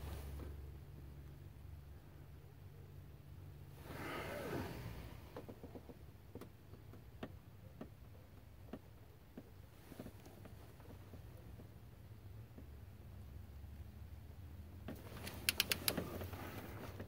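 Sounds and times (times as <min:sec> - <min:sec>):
torque wrench clicks: 0:15.2 - 0:16.0.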